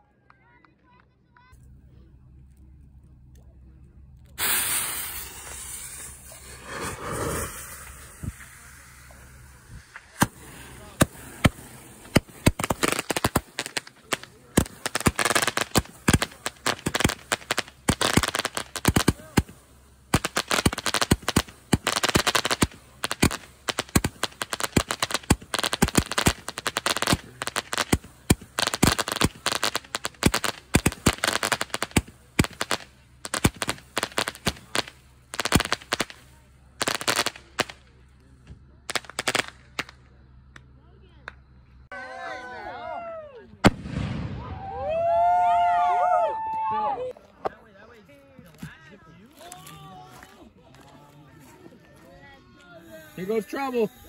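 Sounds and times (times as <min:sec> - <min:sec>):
firework shots and crackling bursts: 0:04.3 - 0:41.9, 0:43.6 - 0:45.5, 0:52.8 - 0:54.0.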